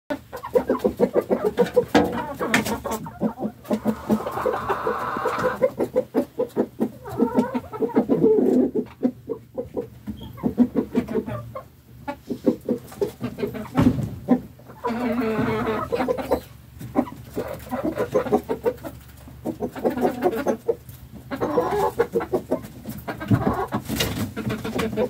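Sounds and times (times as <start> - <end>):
long drawn-out chicken calls: 0.1 - 13.8, 14.6 - 25.0
hens clucking: 0.1 - 25.0.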